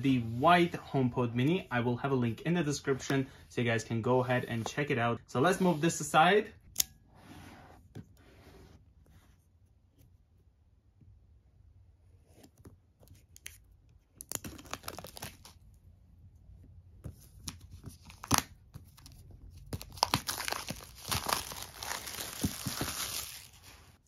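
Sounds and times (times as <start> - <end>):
plastic wrap crinkling and tearing: 14.2 - 15.6, 19.6 - 24.0.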